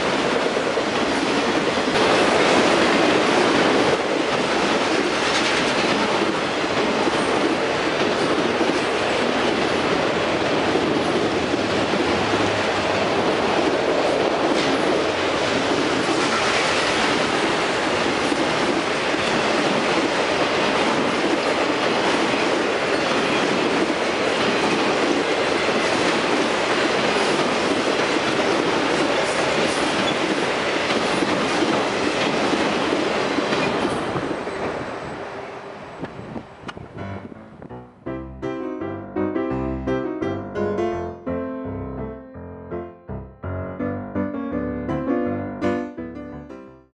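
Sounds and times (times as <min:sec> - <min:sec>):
freight train wheels on rails: 0:00.0 - 0:37.1.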